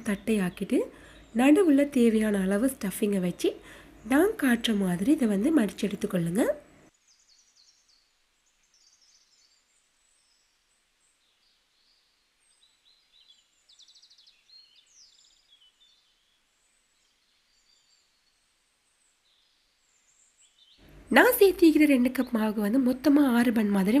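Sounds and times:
faint high bird chirps: 7.0s - 20.9s.

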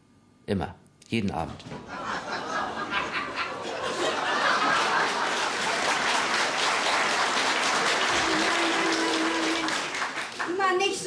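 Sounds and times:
audience laughing: 1.6s - 10.1s
audience applauding: 2.2s - 11.0s.

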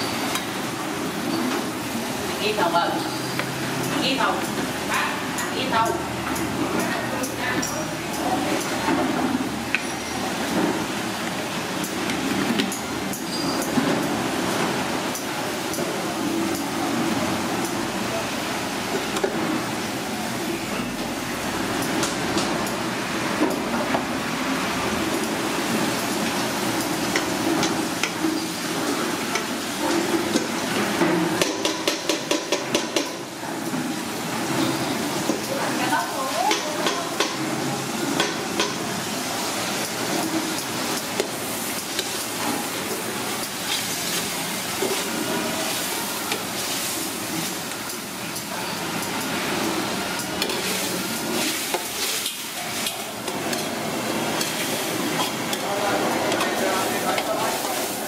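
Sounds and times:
food sizzling in a hot pan: 24.4s - 58.0s.

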